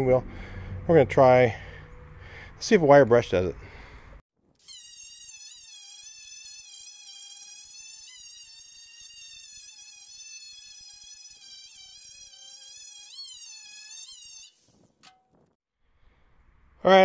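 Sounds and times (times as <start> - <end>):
wire brush power tool whining: 4.6 - 15.2
wire brush scraping metal: 5.3 - 15.6.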